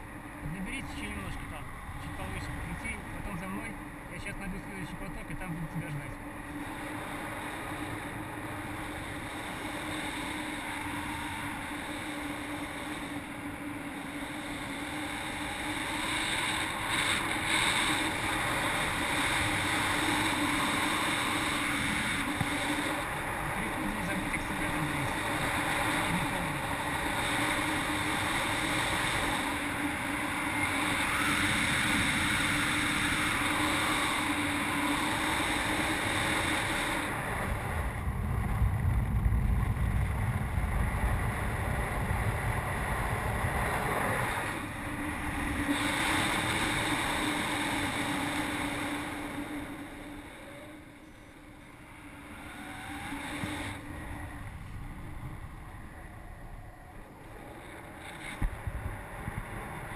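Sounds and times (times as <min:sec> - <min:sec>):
low wind buffeting: 0:00.0 - 0:59.9
wind noise on microphone: 0:14.6 - 0:49.7, 0:52.6 - 0:56.8, 0:57.6 - 0:59.9.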